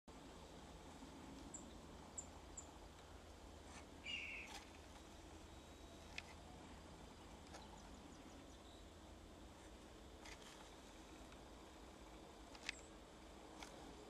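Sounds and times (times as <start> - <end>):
high bird chirps: 4.0 - 4.6.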